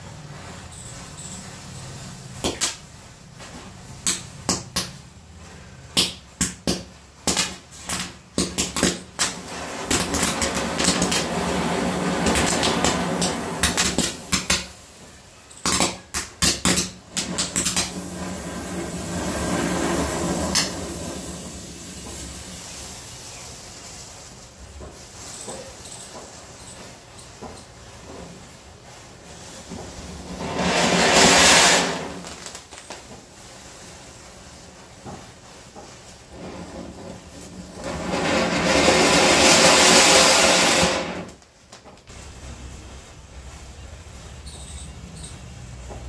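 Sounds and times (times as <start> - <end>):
burning match heads hissing: 7.3 - 25.1, 28.8 - 35.5, 36.1 - 41.4.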